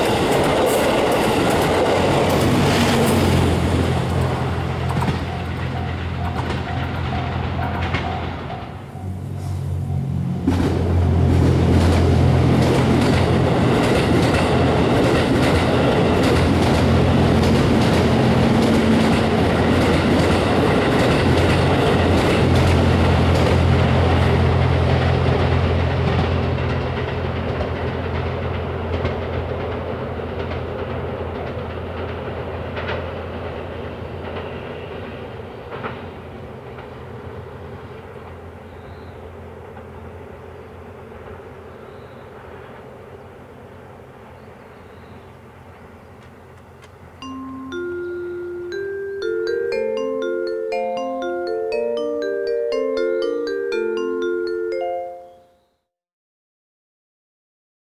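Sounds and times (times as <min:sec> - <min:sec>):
train wheels clacking on rail joints: 0:00.0 - 0:38.4
train engine drone: 0:00.0 - 0:54.8.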